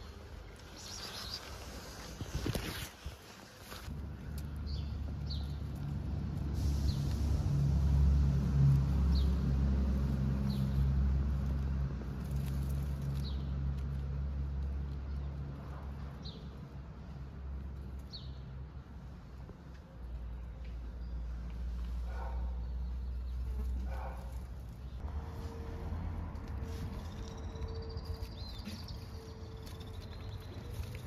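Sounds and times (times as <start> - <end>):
traffic engine rumble: 0.0 - 31.0
small bird chirping: 0.6 - 1.9.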